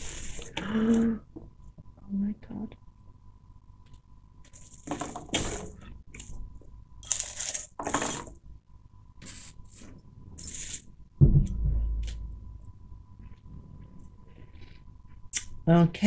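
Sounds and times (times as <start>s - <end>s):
heavy thump with low rumble: 11.2s - 12.7s.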